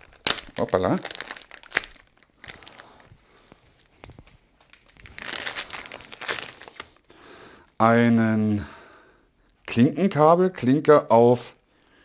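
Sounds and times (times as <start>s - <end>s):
plastic bag crinkling: 0.0s - 7.1s.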